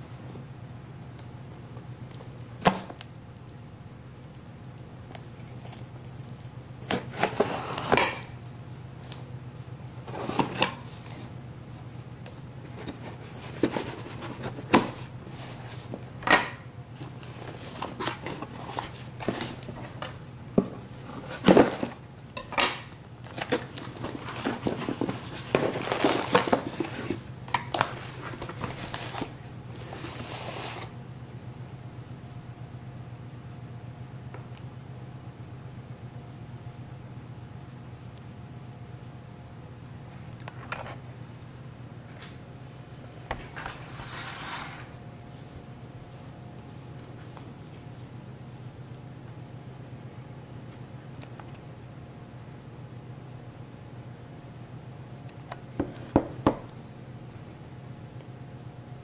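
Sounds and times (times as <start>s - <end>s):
steady low hum: 0.0s - 59.0s
cardboard tearing and rustling: 5.4s - 8.4s, 10.0s - 11.3s, 12.7s - 16.0s, 17.0s - 20.2s, 20.8s - 22.0s, 23.2s - 31.0s.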